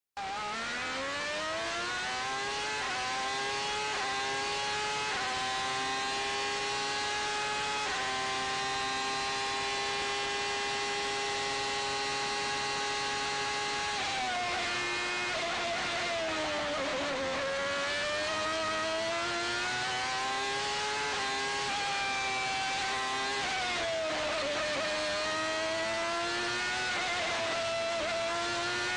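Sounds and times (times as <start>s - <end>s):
racing car engine at full throttle: 0.2s - 28.9s.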